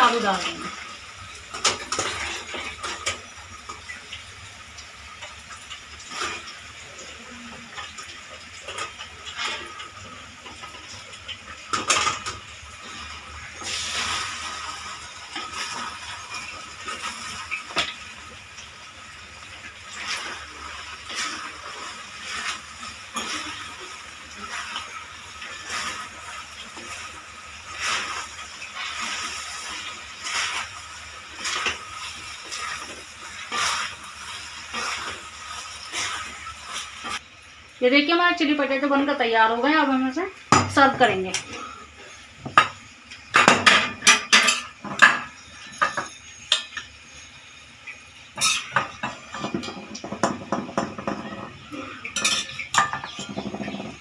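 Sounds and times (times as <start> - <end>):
food sizzling in a pan: 0.0 - 54.0
spatula scraping pan: 19.9 - 37.2, 48.4 - 54.0.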